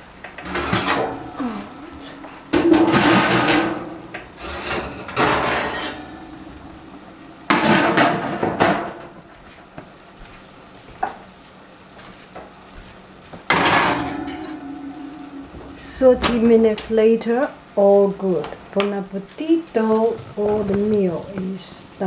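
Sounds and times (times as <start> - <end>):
baking dish and oven rack clattering: 2.5 - 6.4, 7.5 - 9.1, 13.5 - 14.8.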